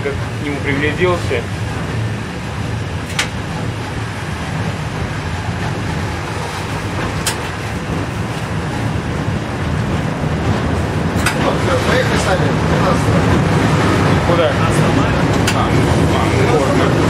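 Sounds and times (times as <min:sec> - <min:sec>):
tram rumbling on rails: 0:00.0 - 0:17.0.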